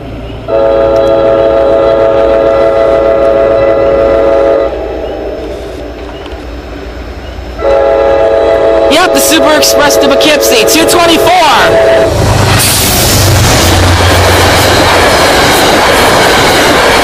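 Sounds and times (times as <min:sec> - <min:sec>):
train air horn blasts: 0:00.5 - 0:05.9, 0:07.6 - 0:12.2.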